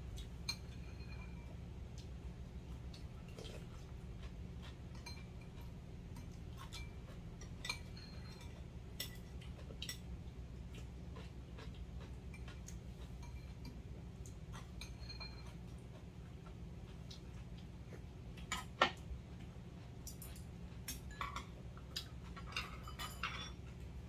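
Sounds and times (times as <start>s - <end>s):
steady low hum: 0.0s - 24.0s
cutlery clinking on ceramic bowls: 0.4s - 1.6s, 4.6s - 10.1s, 12.3s - 13.8s, 14.5s - 15.7s, 20.1s - 23.8s.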